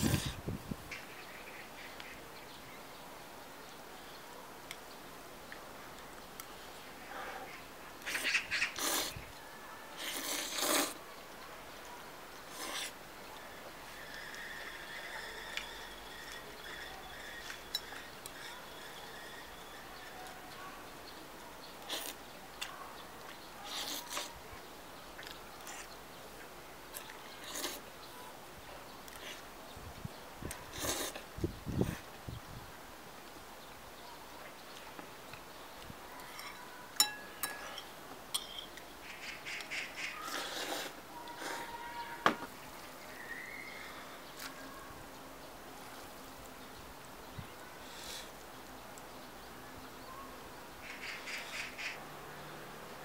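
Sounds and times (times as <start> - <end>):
person slurping noodles: 0.0 - 0.4, 8.2 - 9.2, 10.0 - 11.0, 12.5 - 13.0, 30.7 - 31.2, 40.3 - 41.7
chopsticks clinking on ceramic bowl: 36.3 - 38.8.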